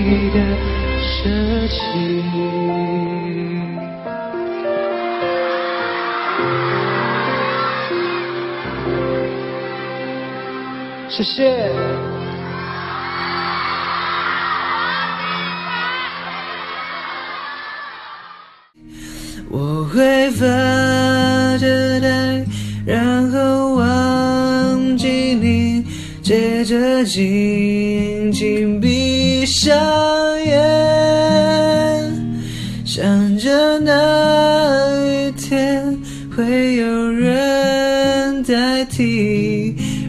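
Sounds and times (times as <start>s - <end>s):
plucked acoustic guitar: 0.0s - 3.8s, 18.8s - 40.0s
man singing a slow ballad: 0.0s - 4.1s, 19.0s - 40.0s.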